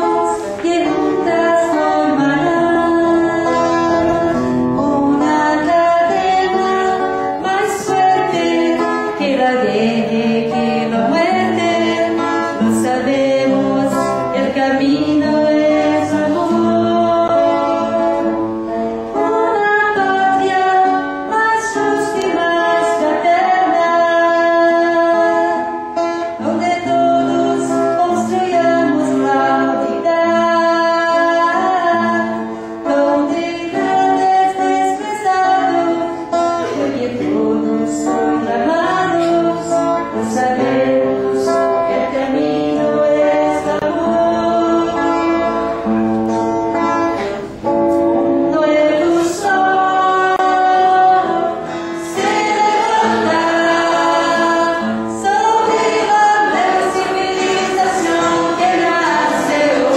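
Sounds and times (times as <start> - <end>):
choir singing: 0.0 - 25.7, 36.6 - 45.6, 48.6 - 59.9.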